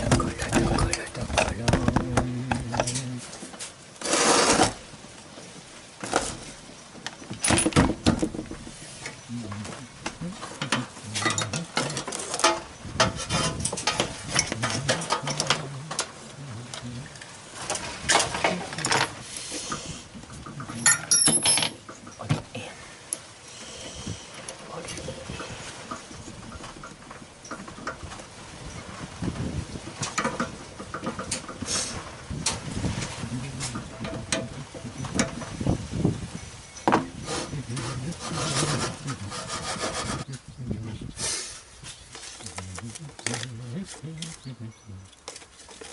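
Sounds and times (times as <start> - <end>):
metal scraping and rubbing: 4.0 - 4.9, 10.3 - 16.2, 37.1 - 40.4
drill bits clinking and rattling: 20.8 - 22.2.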